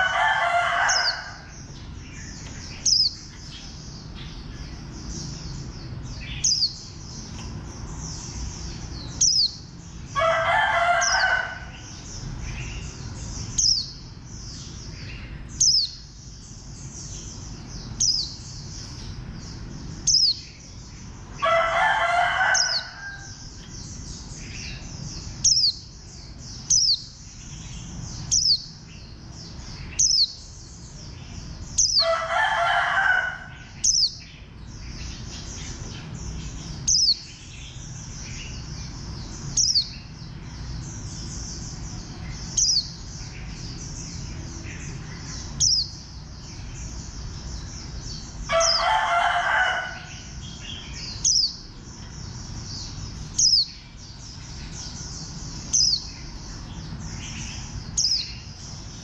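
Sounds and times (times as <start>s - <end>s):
rooster crowing: 0.0s - 1.5s, 10.2s - 11.9s, 21.4s - 23.4s, 32.0s - 33.8s, 48.5s - 50.4s
bird chirping: 0.0s - 59.0s.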